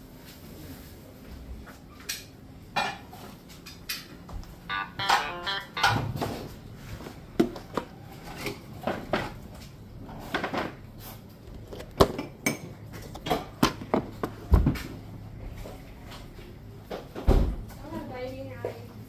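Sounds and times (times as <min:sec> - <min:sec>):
plastic containers clattering: 0:11.5 - 0:14.7.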